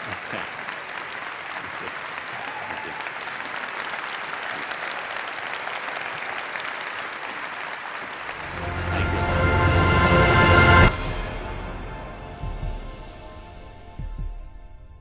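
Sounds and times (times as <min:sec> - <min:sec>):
large audience applauding: 0:00.0 - 0:11.7.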